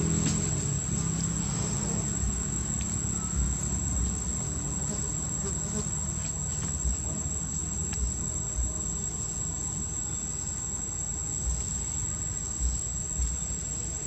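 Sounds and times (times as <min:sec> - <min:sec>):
low rumble: 0:00.0 - 0:04.5
high-pitched insect drone: 0:00.0 - 0:14.0
dull low thumps: 0:02.0 - 0:02.6.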